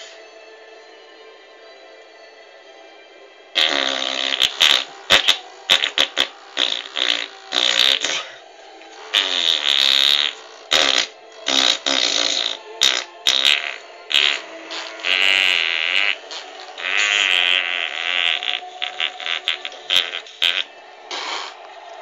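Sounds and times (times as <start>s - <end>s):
distorted stadium crowd cheering: 18.6s - 22.0s.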